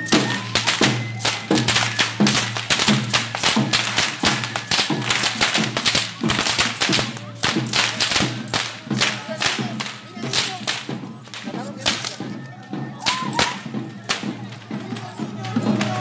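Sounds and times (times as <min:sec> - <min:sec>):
music: 0:00.0 - 0:16.0
whips cracking: 0:00.2 - 0:12.2.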